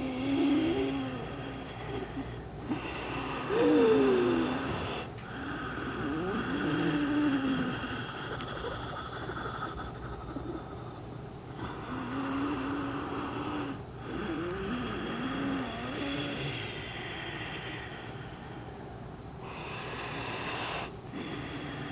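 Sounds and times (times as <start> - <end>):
woman breathing heavily: 16.3 - 21.9.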